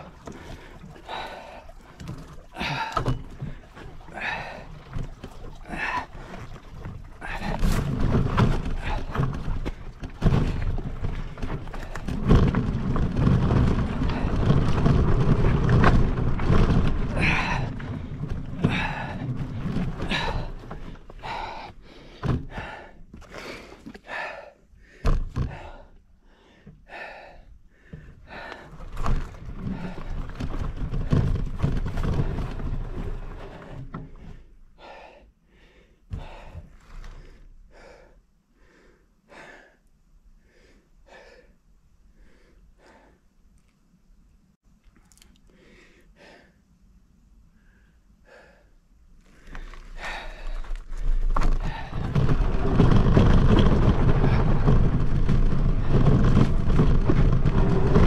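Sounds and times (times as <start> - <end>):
rider breathing hard: 0.0 - 12.5, 13.2 - 43.4, 45.5 - 46.7, 47.5 - 58.0
bike jolting over trail: 0.0 - 23.7, 28.0 - 34.5, 49.2 - 58.0
wind rumbling on microphone: 2.6 - 21.6, 50.0 - 58.0.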